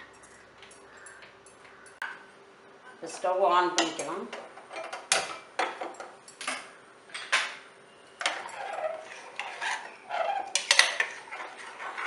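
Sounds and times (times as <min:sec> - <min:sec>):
metal spoon scraping metal pot: 0:08.2 - 0:12.0.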